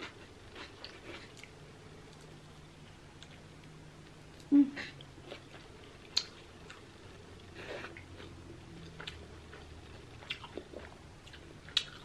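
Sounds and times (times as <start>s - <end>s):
person chewing: 0.0s - 2.4s, 4.4s - 6.8s, 7.5s - 12.0s.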